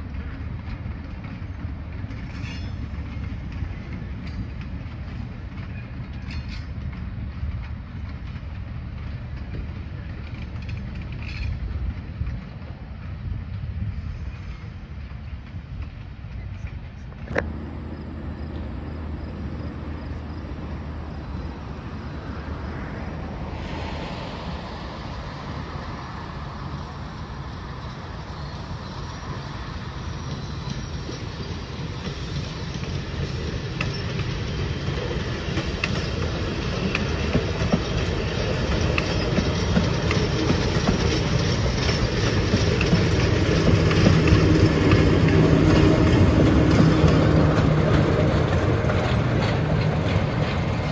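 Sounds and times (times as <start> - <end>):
train wheels clickety-clack on rails: 0.0 - 50.9
diesel engine drone: 17.3 - 24.0, 38.0 - 50.9.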